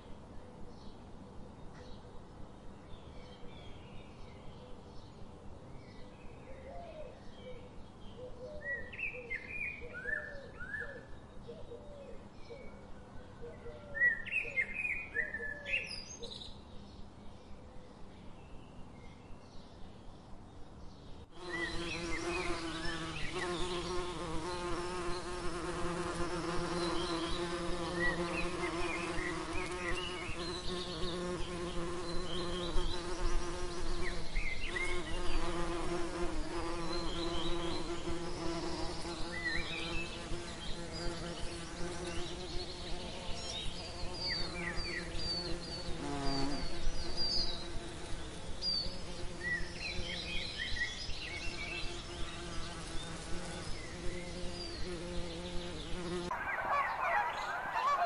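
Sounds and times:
bee buzzing: 21.4s - 50.2s, 51.5s - 58.0s.

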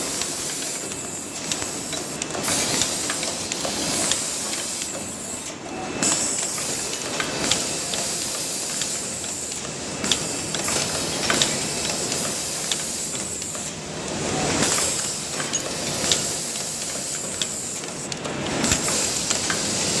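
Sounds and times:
machine clicking and knocking: 0.1s - 5.4s, 6.0s - 20.0s.

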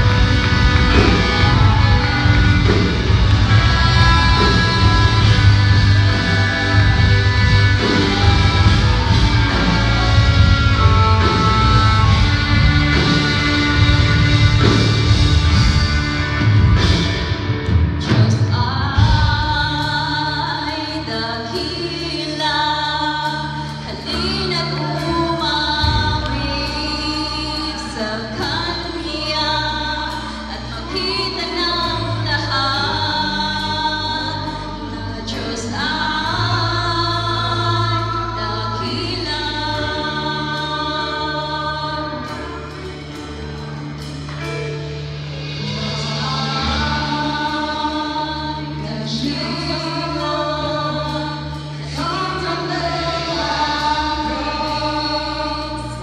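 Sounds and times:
live band playing: 0.0s - 56.0s
long bass notes: 0.0s - 56.0s
choir singing gospel song: 45.5s - 56.0s.

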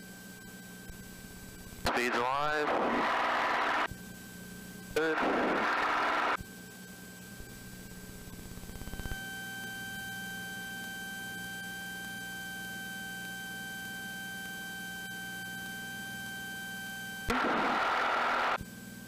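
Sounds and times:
thin high whine: 1.8s - 4.0s, 4.8s - 6.4s, 8.8s - 18.6s.

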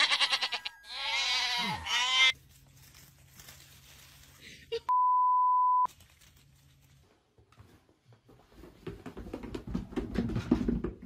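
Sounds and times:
censor bleep: 4.9s - 5.9s.

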